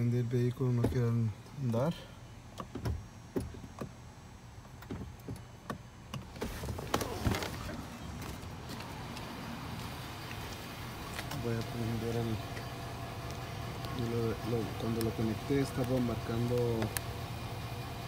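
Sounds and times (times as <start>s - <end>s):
car door: 2.5s - 4.0s, 4.6s - 9.4s.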